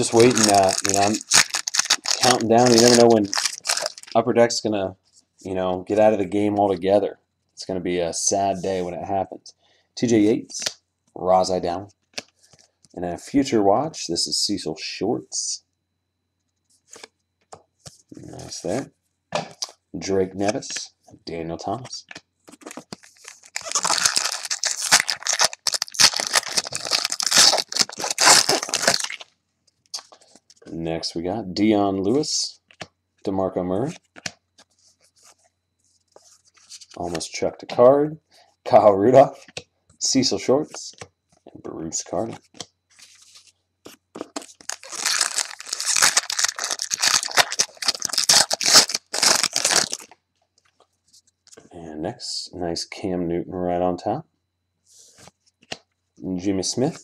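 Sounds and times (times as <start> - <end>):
foil wrapper tearing and crinkling: 0.0 - 4.2, 22.9 - 29.3, 44.4 - 50.1.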